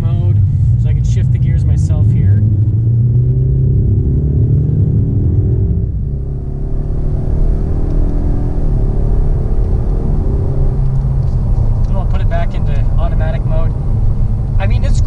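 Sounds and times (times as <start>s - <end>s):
car engine accelerating: 0.0s - 15.0s
road rumble: 0.0s - 15.0s.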